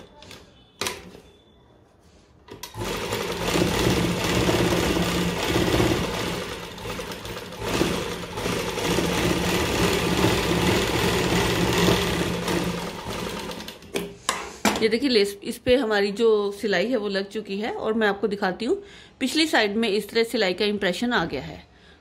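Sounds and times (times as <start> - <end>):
sewing machine stitching: 2.5 - 14.0.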